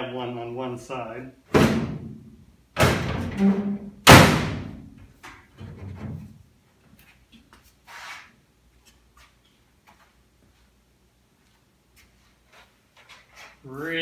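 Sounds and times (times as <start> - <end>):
metal hood slamming shut: 1.5 - 2.2, 2.8 - 4.9.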